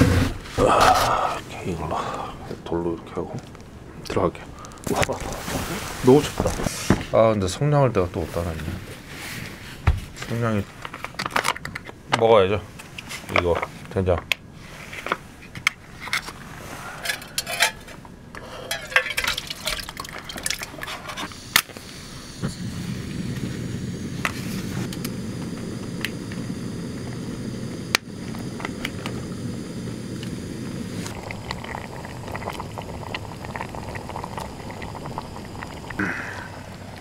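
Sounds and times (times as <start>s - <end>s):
flame rushing and stew simmering: 0.0s - 7.3s, 18.6s - 37.0s
pot and utensils clinking: 18.6s - 21.3s.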